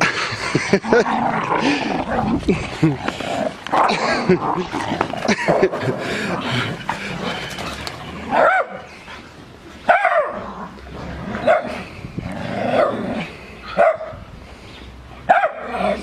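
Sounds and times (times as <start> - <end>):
small dog barking: 8.4 - 8.8, 13.7 - 14.2, 15.3 - 15.7.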